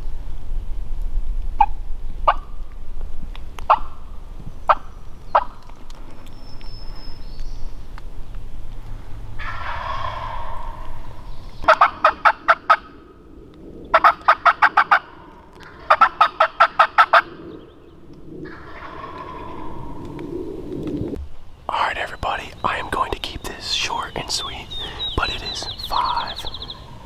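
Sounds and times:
raspy turkey calls: 9.4 - 13.0, 13.9 - 17.5, 18.4 - 20.0, 21.8 - 27.0
turkey calling: 9.4 - 13.0, 13.9 - 17.5, 18.4 - 20.0, 22.3 - 27.0.

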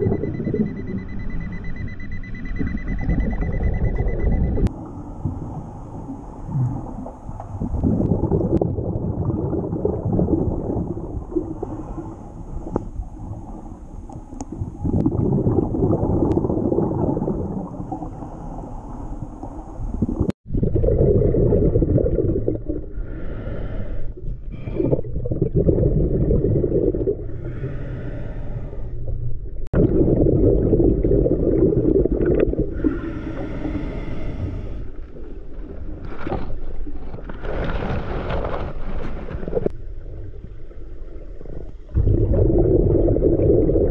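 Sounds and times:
bubbly underwater exhalations: 6.4 - 13.6, 14.5 - 18.5, 19.8 - 23.5, 24.5 - 27.7, 29.6 - 33.9, 41.6 - 43.9.

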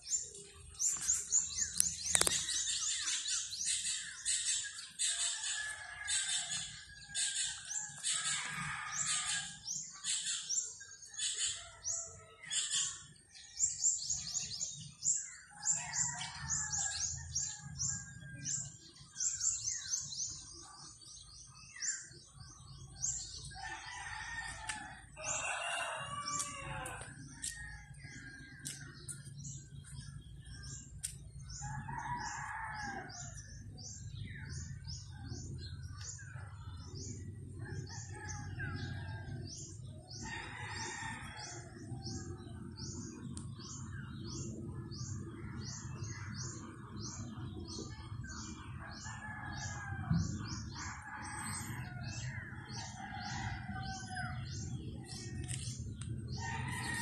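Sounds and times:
small birds chirping: 0.0 - 57.0
rooster crowing: 23.6 - 27.2, 56.4 - 57.0.

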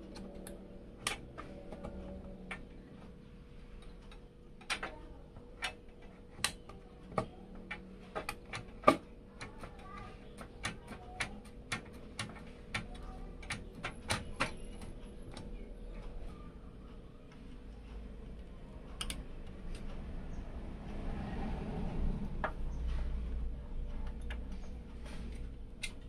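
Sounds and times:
light clicks and taps of hardware: 3.8 - 20.1.

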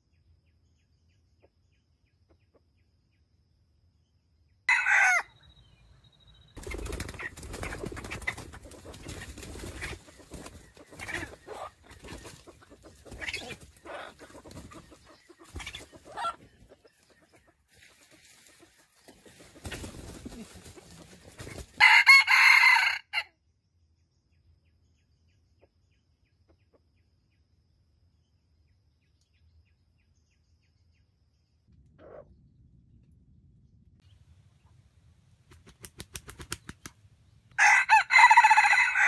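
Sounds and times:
rooster crowing: 4.7 - 5.4, 21.8 - 23.3, 37.6 - 39.0
rooster clucking: 7.2 - 17.4.

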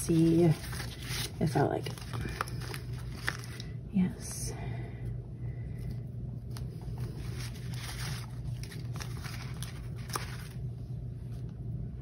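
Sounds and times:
paper stickers rustling: 0.0 - 3.7, 6.5 - 10.7
steady low hum: 0.0 - 12.0.

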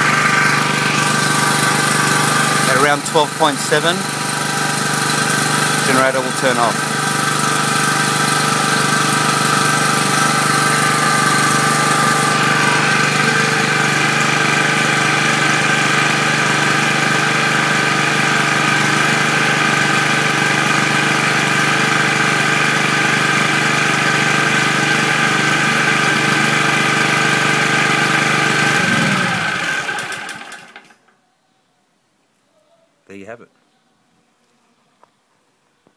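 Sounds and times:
petrol generator running: 0.0 - 31.1.

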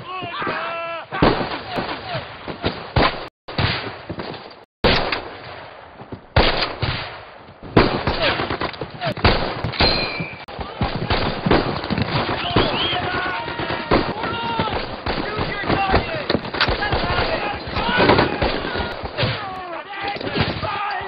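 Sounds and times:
rifle shots: 4.8 - 5.7, 6.4 - 10.2.

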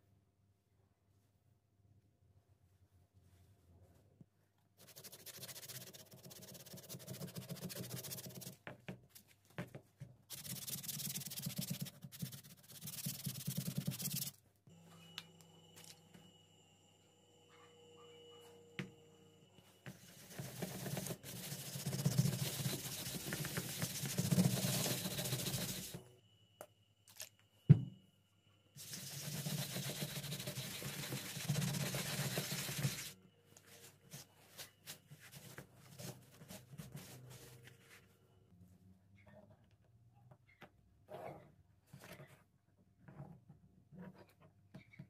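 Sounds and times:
cloth wiping rubber: 4.8 - 8.6, 10.3 - 14.3, 20.0 - 26.0, 28.8 - 33.2.

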